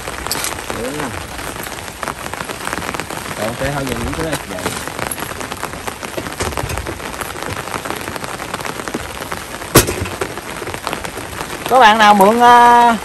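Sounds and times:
rain ticking on umbrella: 0:00.0 - 0:13.0
sharp knock: 0:09.8 - 0:10.3.

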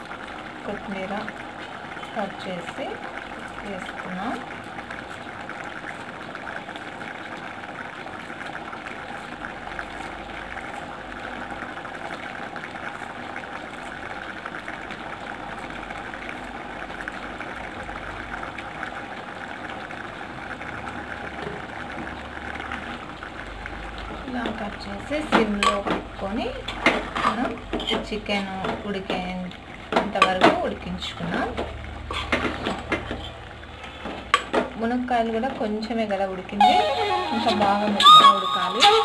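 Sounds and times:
curry bubbling in a pot: 0:00.0 - 0:36.6.

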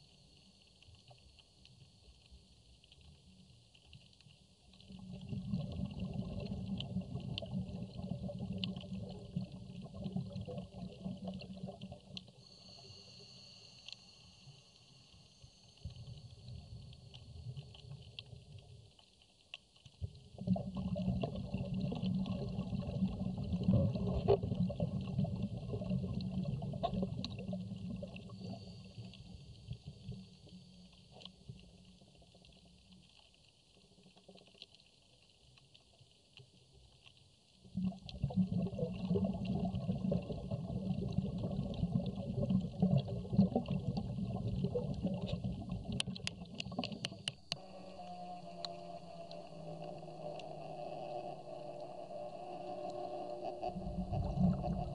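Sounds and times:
underwater rumbling and bubbling: 0:00.0 - 0:13.4, 0:14.3 - 0:54.9
faint crackle and hiss: 0:00.0 - 0:54.9.

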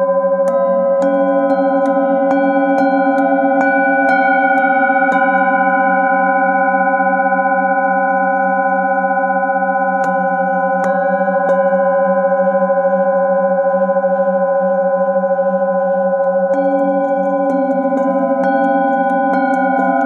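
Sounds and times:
singing bowls ringing: 0:00.0 - 0:20.0
mallet striking singing bowl: 0:00.4 - 0:05.5, 0:10.0 - 0:12.5.

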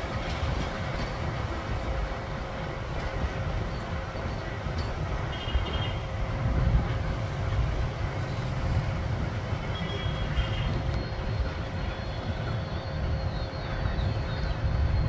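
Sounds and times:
steam train rumbling: 0:00.0 - 0:15.0.

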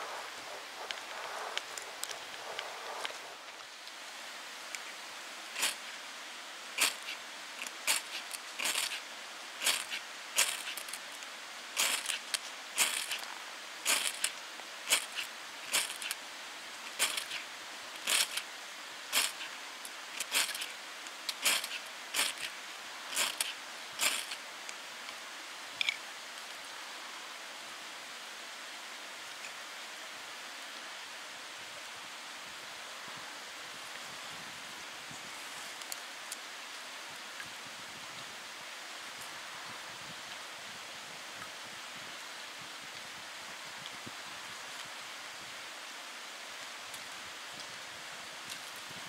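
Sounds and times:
fire steel scraping: 0:05.5 - 0:06.0, 0:06.7 - 0:16.2, 0:16.8 - 0:18.5, 0:19.1 - 0:24.4.

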